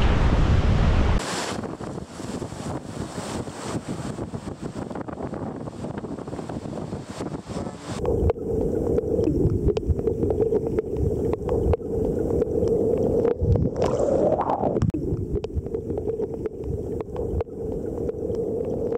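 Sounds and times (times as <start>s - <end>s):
underwater rumble and hum: 1.8s - 18.9s
small underwater clicks and crackles: 8.0s - 18.9s.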